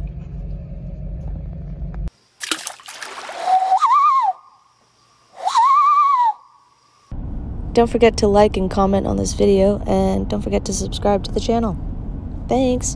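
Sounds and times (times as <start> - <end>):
low rumble in car cabin: 0.0 - 2.1, 7.1 - 12.9
rushing splashy noise: 2.4 - 3.6
rising and falling whistling calls: 3.3 - 4.7, 5.3 - 6.7.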